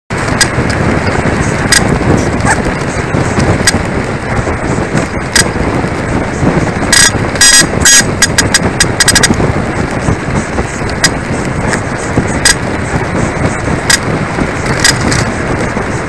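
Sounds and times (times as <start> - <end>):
road noise from riding: 0.1 - 16.0
wind noise: 0.1 - 16.0
electronic bicycle horn beeping: 6.9 - 9.4.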